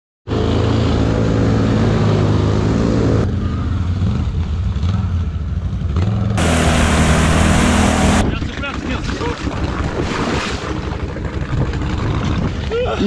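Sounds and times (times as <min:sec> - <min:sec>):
atv engine running hard: 0:00.3 - 0:09.9, 0:10.8 - 0:13.0
water spraying: 0:06.4 - 0:08.2.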